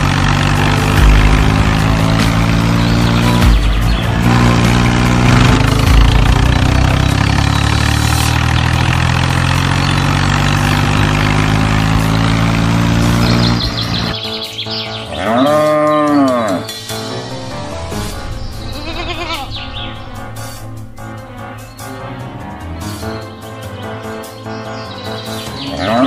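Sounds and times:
truck engine running: 0.0 - 14.2, 17.2 - 23.3
cow mooing: 15.2 - 16.7, 25.8 - 26.0.

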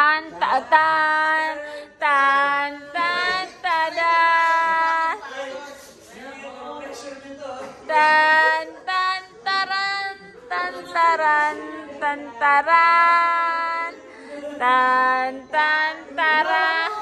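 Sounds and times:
high voice singing slow melody: 0.0 - 5.3.

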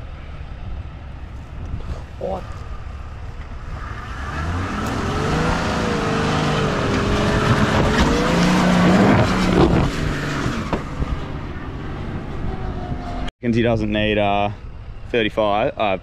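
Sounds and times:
engine revving under load: 3.6 - 13.3.

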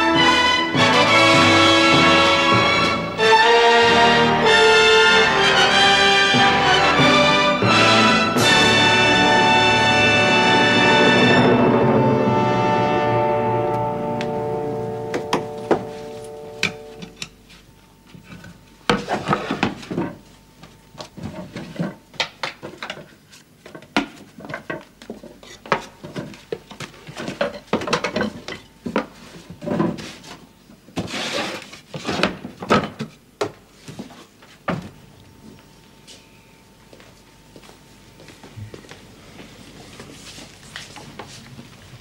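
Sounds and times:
orchestral music: 0.0 - 17.1.

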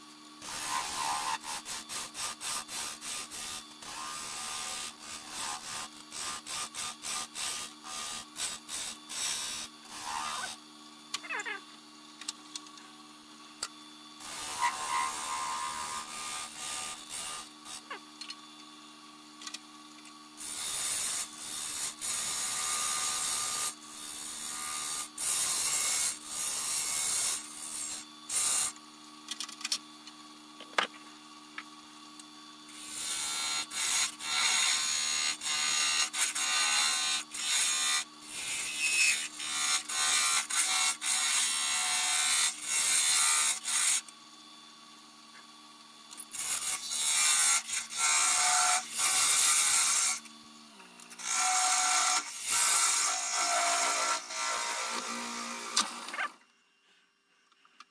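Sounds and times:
wood lathe humming: 14.2 - 18.0.

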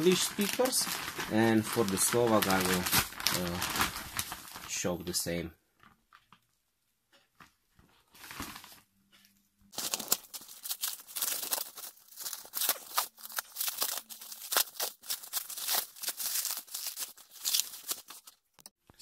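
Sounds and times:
plastic wrapping crinkling: 0.0 - 5.0, 7.8 - 8.8, 9.7 - 18.7.

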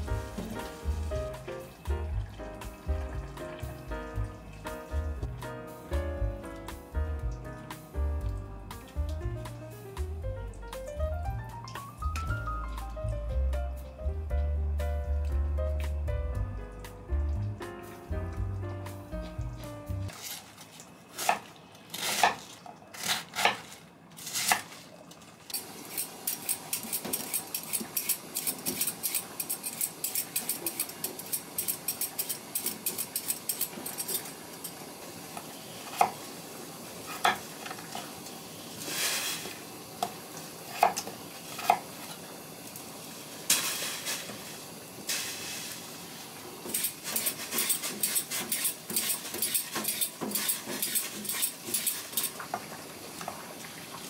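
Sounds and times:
peeler scraping carrot: 25.9 - 34.2, 46.7 - 52.4.

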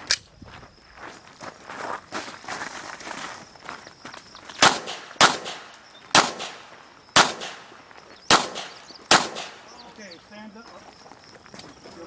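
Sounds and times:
handgun shots: 4.6 - 9.7.

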